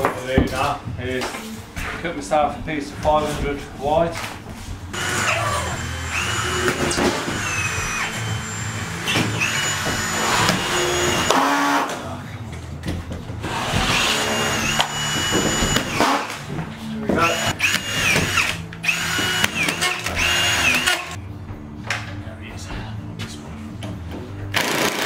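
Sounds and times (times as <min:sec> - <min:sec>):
cordless screw gun whining: 0:05.0 - 0:11.7, 0:13.9 - 0:16.2, 0:17.2 - 0:21.2.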